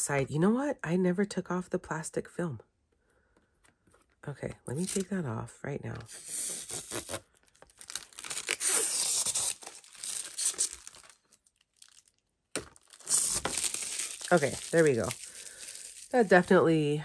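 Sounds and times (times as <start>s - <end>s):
plastic film peeling and crackling: 4.7s - 5.1s, 6.1s - 16.8s.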